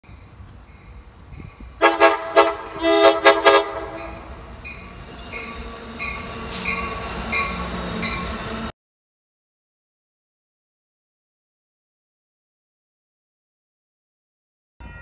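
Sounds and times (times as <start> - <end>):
train rumbling past: 0.0 - 8.7
train air horn blasts: 1.8 - 4.4.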